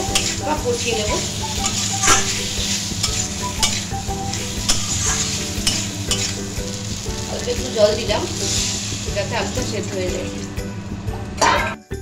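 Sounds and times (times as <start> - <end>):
metal spatula scraping pan: 0.0 - 6.6, 7.7 - 10.2
food sizzling in frying pan: 0.0 - 11.6.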